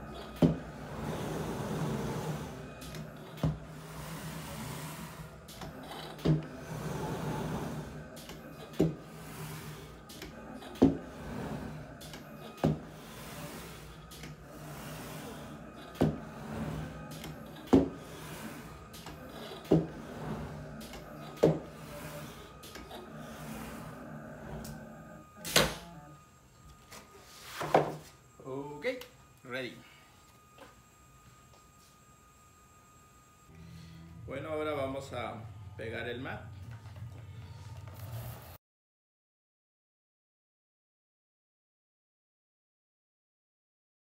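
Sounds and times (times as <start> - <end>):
cutter motor whir: 0.0 - 28.4.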